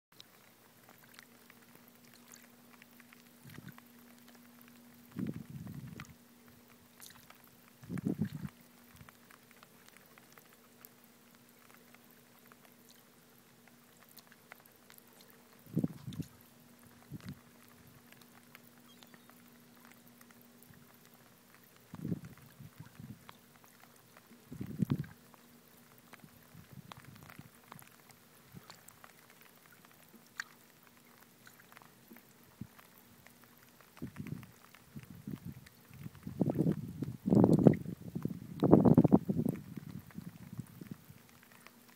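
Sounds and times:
small ticks: 0:00.2 - 0:41.9
water lapping on rocks: 0:00.2 - 0:41.9
steady low hum: 0:00.3 - 0:29.1.

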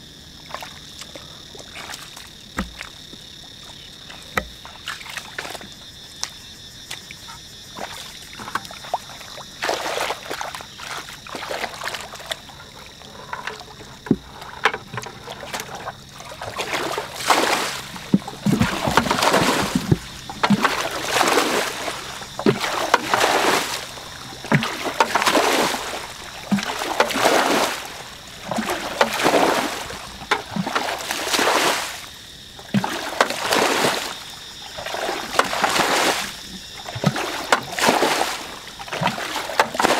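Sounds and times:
water splashing from bucket bailing: 0:00.3 - 0:39.9
hands squelching in mud: 0:00.5 - 0:32.0.

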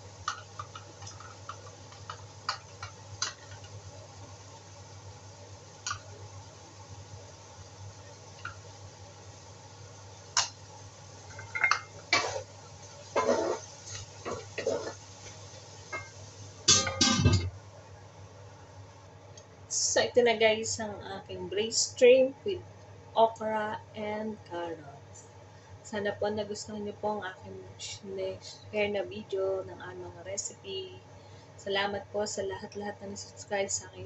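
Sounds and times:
spatula scraping a wok: 0:12.1 - 0:15.4
steel lid clattering onto wok: 0:16.7 - 0:17.5.

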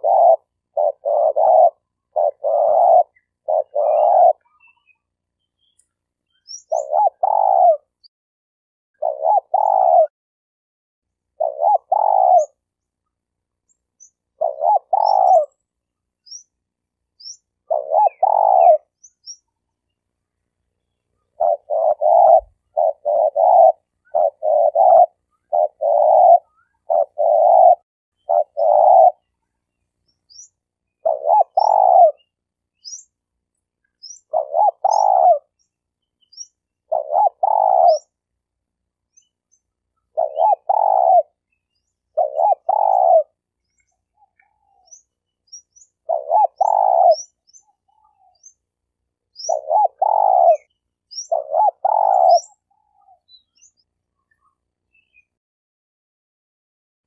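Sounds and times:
dove cooing: 0:00.0 - 0:05.1, 0:06.4 - 0:08.0, 0:09.0 - 0:10.1, 0:11.3 - 0:12.6, 0:14.3 - 0:15.6, 0:17.2 - 0:19.4, 0:20.8 - 0:29.4, 0:30.3 - 0:33.1, 0:34.0 - 0:38.2, 0:39.9 - 0:48.6, 0:49.3 - 0:53.7
faint high bird chirps: 0:00.0 - 0:08.1, 0:09.0 - 0:10.1, 0:11.3 - 0:12.9, 0:13.6 - 0:55.4.

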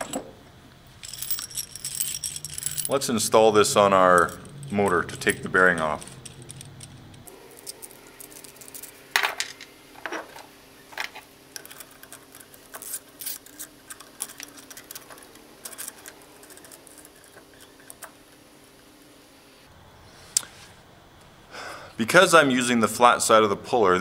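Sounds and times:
metallic clicks and clinks: 0:00.9 - 0:03.2, 0:03.8 - 0:09.7, 0:11.0 - 0:18.2.

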